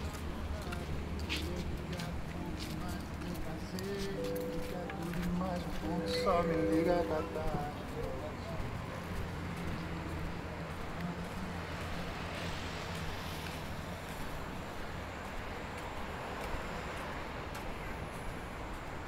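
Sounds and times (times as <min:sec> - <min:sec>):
road traffic noise: 0:00.0 - 0:19.0
low hum: 0:04.1 - 0:09.0.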